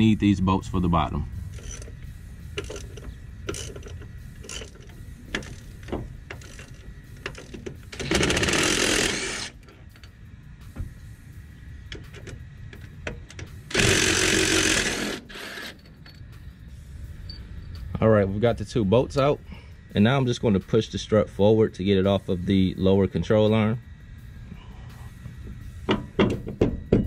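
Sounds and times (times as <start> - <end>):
ratchet clicking: 1.5 - 10.2, 11.8 - 16.4
cordless drill spinning out bolts: 8.0 - 9.6, 13.7 - 15.9.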